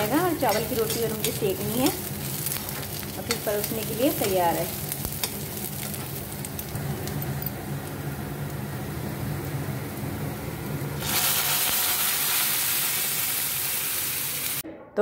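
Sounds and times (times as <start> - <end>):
onions frying in oil: 0.0 - 14.6
loud sizzle of poured puree: 4.6 - 14.6.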